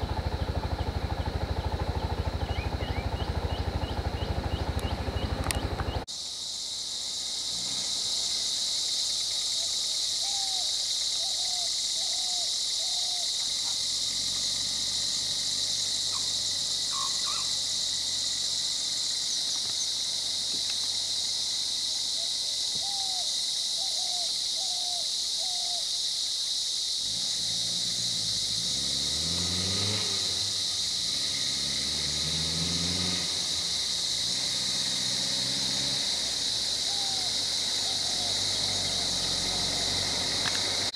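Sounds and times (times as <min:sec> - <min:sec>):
insect chorus drone: 0:00.0 - 0:40.9
bird chirping: 0:00.4 - 0:06.1, 0:16.1 - 0:17.6.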